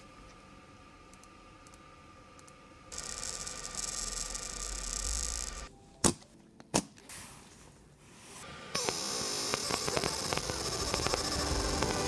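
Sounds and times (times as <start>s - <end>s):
laser machine hissing: 2.9s - 5.7s, 8.7s - 12.0s.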